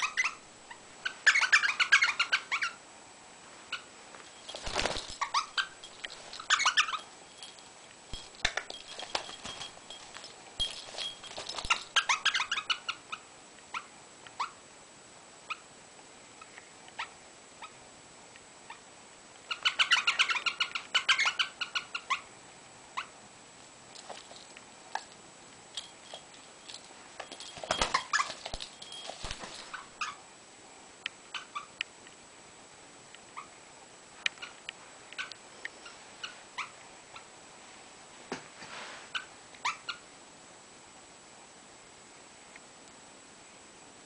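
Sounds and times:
parrot chattering: 0:00.0 - 0:02.8.

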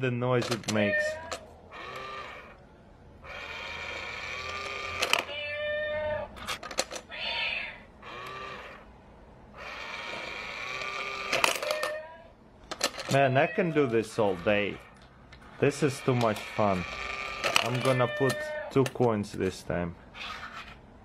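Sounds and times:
recorded cat meowing: 0:00.7 - 0:01.4, 0:05.2 - 0:06.4, 0:07.1 - 0:07.9, 0:17.6 - 0:18.7.

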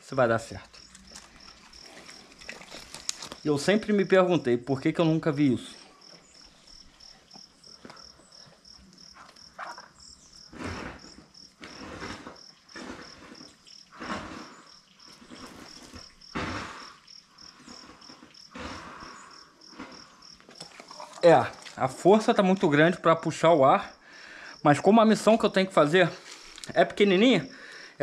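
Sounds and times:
heavy breathing through a tube: 0:10.5 - 0:14.8, 0:15.4 - 0:20.4, 0:24.0 - 0:24.6, 0:27.5 - 0:28.0.

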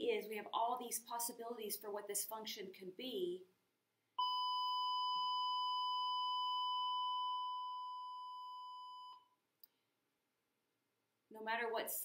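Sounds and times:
steady electronic beep: 0:04.2 - 0:09.3.

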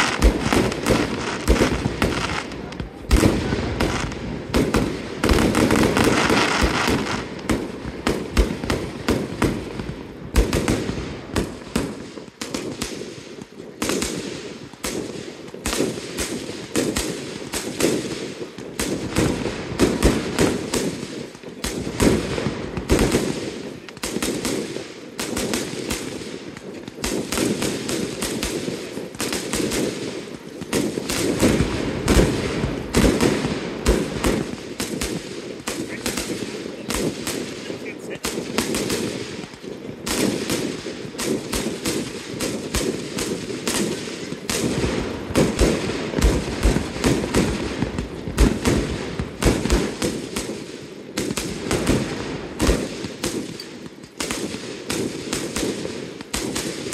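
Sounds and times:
fireworks bangs and crackles: 0:00.0 - 0:56.9.

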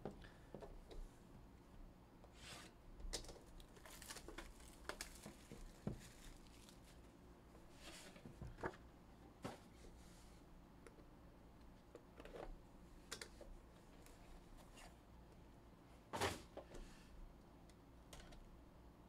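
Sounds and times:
plastic wrap crinkling and tearing: 0:03.5 - 0:07.0.

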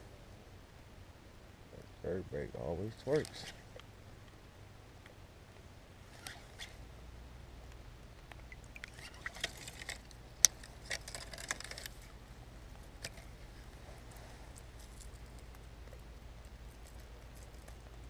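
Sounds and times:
fishing lure splashing: 0:08.4 - 0:11.9.

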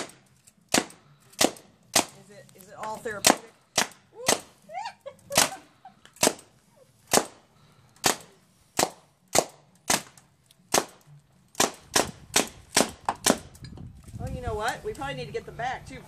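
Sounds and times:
paintball marker pops: 0:08.8 - 0:13.6.

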